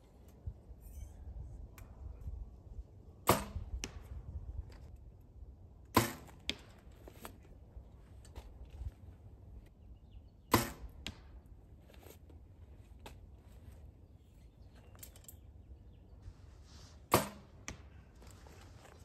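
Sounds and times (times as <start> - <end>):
arrow hitting target: 3.2 - 4.2, 5.9 - 6.7, 10.5 - 11.3, 16.9 - 18.0.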